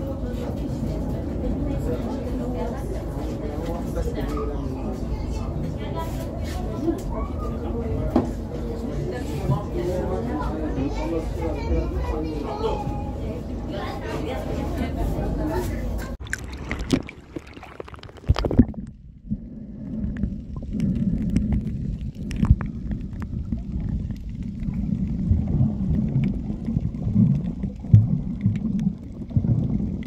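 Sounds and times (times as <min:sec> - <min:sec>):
clicks and splashes: 0:16.0 - 0:19.1, 0:19.9 - 0:30.0
underwater rumbling and gurgling: 0:16.2 - 0:30.0.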